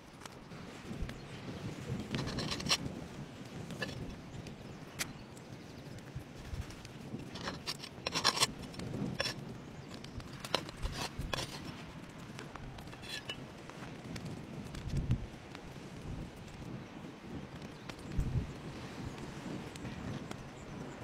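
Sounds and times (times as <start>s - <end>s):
meat crackling on hot stone: 2.0s - 18.5s.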